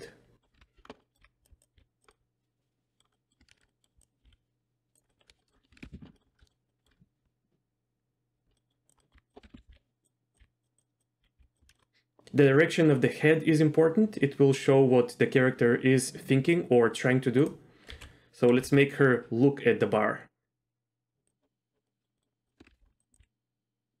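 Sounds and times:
computer keyboard and mouse clicks: 0.4s - 2.2s, 3.0s - 7.1s, 8.4s - 12.4s, 17.8s - 18.6s, 22.2s - 23.3s.

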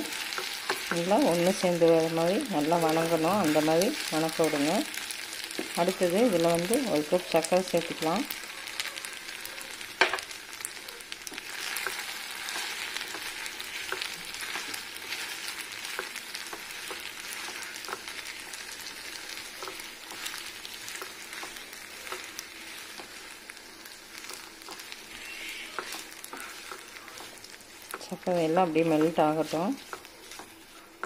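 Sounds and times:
pearls sizzling in a pan: 0.0s - 31.0s
spatula scraping and tapping pan: 24.2s - 31.0s.

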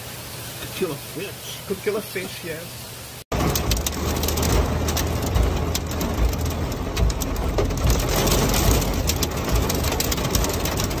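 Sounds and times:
rain and hail pelting window glass: 3.3s - 11.0s
steady low rumble: 3.3s - 11.0s.

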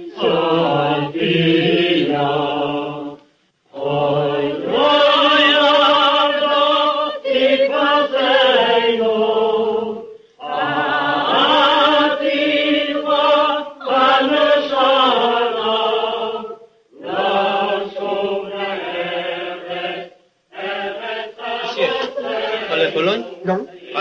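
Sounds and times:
group of voices chanting: 20.6s - 24.0s.

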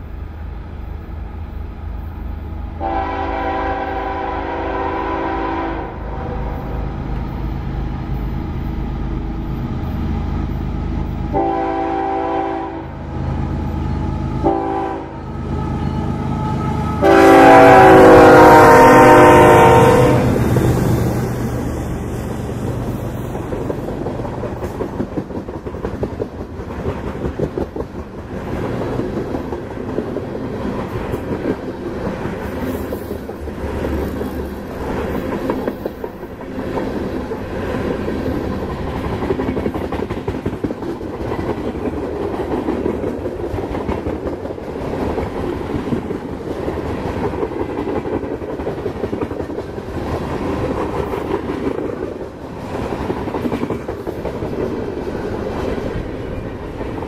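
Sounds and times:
freight train rolling past: 0.0s - 57.0s
train wheels clickety-clack: 20.2s - 57.0s.

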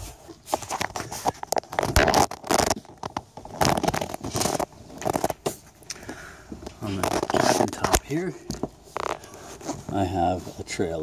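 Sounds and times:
phone handling scrapes and rustles: 0.0s - 5.9s, 6.7s - 11.0s.

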